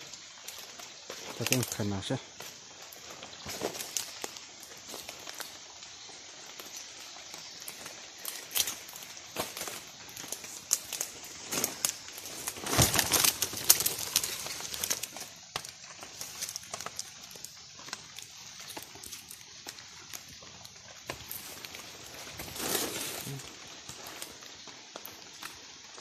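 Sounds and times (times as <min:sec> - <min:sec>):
wet leaves and undergrowth rustling: 0:00.0 - 0:26.0
twigs snapping: 0:06.5 - 0:25.6.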